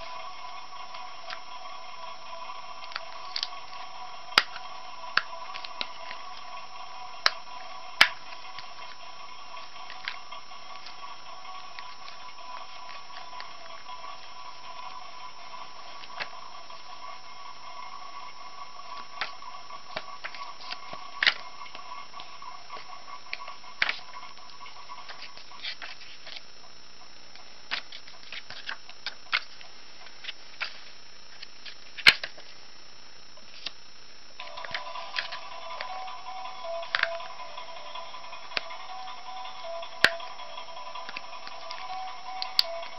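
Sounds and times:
plastic toys and paper handled: 0.0 - 17.2, 18.2 - 26.6, 27.3 - 32.6, 33.4 - 33.8, 34.4 - 36.1
background music: 0.0 - 27.8, 34.4 - 42.9
notebook pages turning: 25.0 - 26.5, 27.7 - 32.6.

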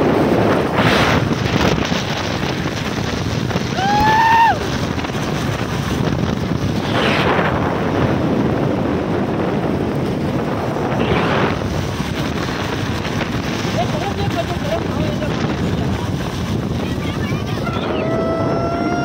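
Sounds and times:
louder wind rushes: 0.0 - 19.0
wind and road noise from car: 0.0 - 19.0.

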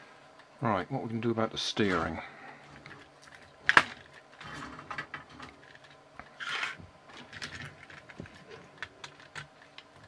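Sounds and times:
plastic toy parts clicking and scraping: 2.7 - 10.0.

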